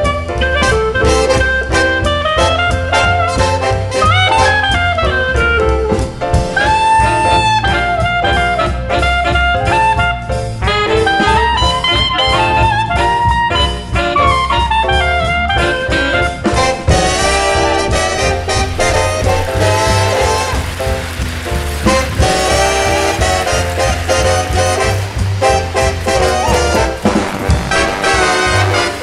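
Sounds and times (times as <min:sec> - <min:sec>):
bass: 0:00.0 - 0:29.0
saxophone and brass: 0:00.0 - 0:29.0
steady drum beat: 0:16.2 - 0:29.0.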